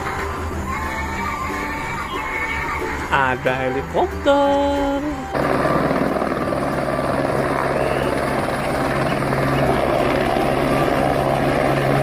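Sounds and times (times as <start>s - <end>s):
helicopter hovering: 0.0s - 12.0s.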